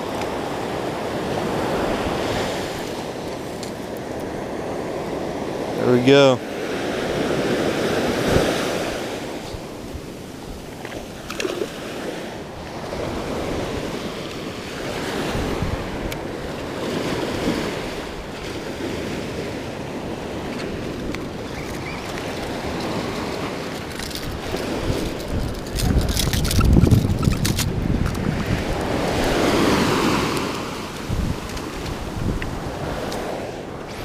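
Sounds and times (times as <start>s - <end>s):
surf washing up a beach: 0.0s - 34.0s
wind buffeting microphone: 6.8s - 34.0s.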